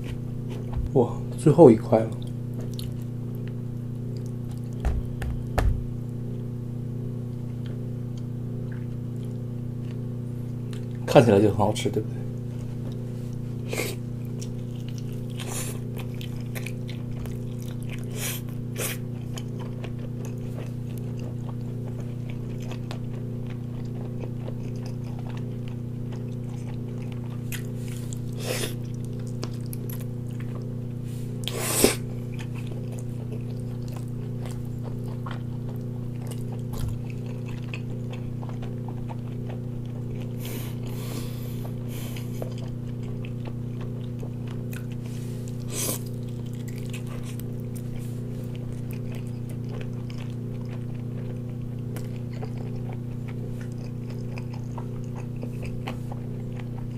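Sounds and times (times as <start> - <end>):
low hum: 2.1 - 11.0
person biting and chewing: 12.9 - 30.7, 31.4 - 56.9.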